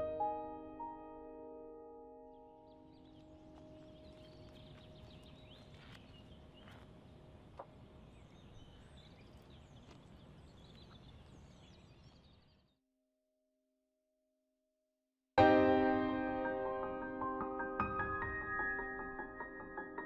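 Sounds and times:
piano notes: 0.0 - 5.5, 15.4 - 20.0
birds chirping: 2.2 - 12.8.

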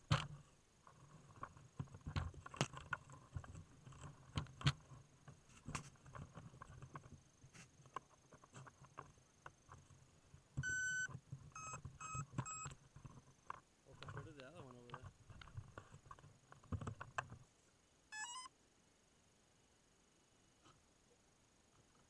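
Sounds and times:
fingers tapping and rubbing camera: 0.0 - 10.0, 10.6 - 17.4
short electronic beeps: 10.6 - 12.7, 18.2 - 18.5.

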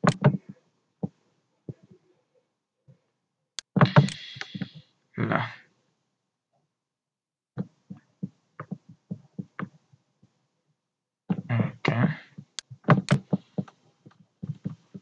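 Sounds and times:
keyboard and mouse clicking: 0.0 - 0.4, 3.6 - 4.8, 12.9 - 15.0.

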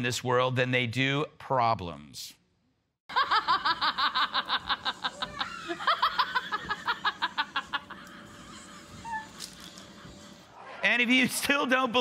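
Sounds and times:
woman laughing hard: 3.1 - 10.4.

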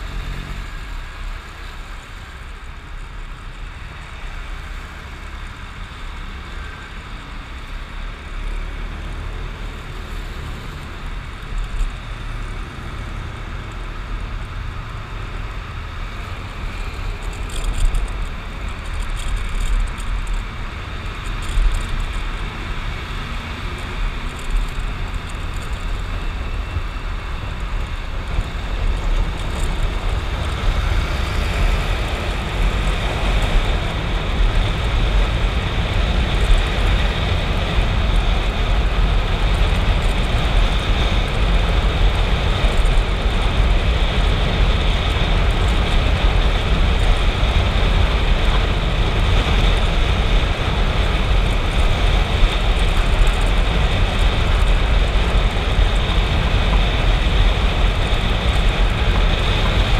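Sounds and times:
motorcycle engine rumble: 0.0 - 59.9
wind rush: 19.8 - 59.9.

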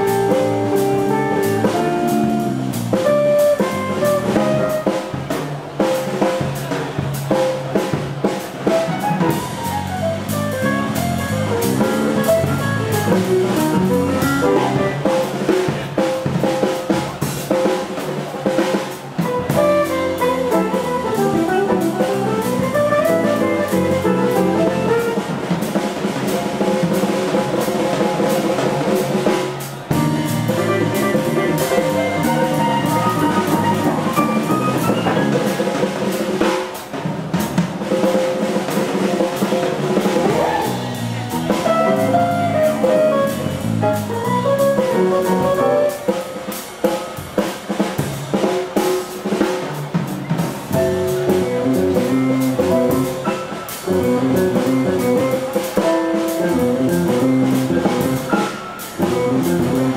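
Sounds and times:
electric bass: 0.0 - 4.7, 9.1 - 15.2, 19.3 - 25.1, 29.9 - 35.4, 40.2 - 45.8, 50.8 - 55.5, 56.4 - 58.4, 59.0 - 59.9
acoustic piano: 0.0 - 59.9
drum kit: 0.0 - 59.9.

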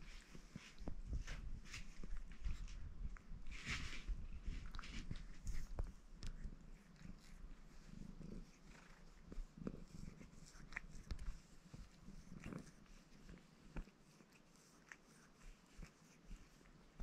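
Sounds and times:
cat purring: 0.0 - 17.0
tongue licking fur clicks: 4.7 - 16.8.

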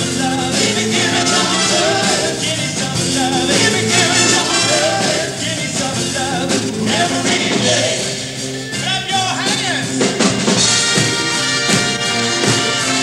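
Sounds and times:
brass band playing blues: 0.0 - 13.0
drums keeping beat: 0.0 - 13.0
horns holding sustained chords: 0.7 - 9.3.

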